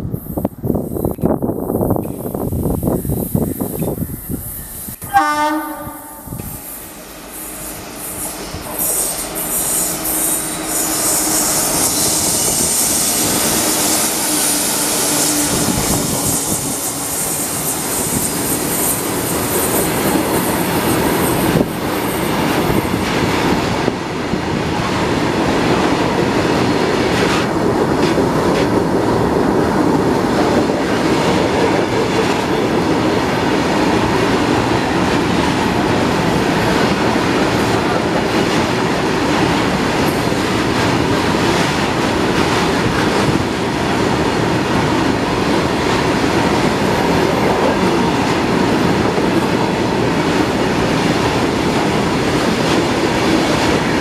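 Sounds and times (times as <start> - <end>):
train wheels rumbling on rails: 0.0 - 54.0
high wheel squeal: 6.8 - 19.9.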